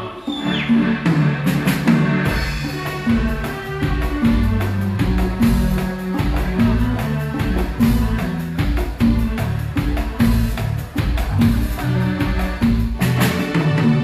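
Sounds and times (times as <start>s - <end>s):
bass line: 0.0s - 14.0s
drum kit and percussion beat: 0.0s - 14.0s
keyboards: 0.0s - 14.0s.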